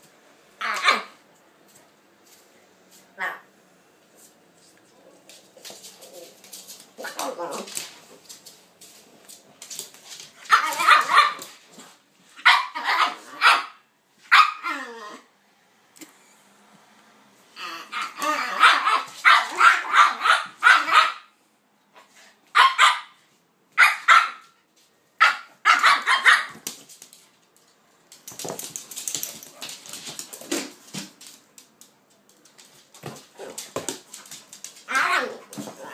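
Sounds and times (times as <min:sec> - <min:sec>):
dogs barking: 0:25.2 - 0:26.6.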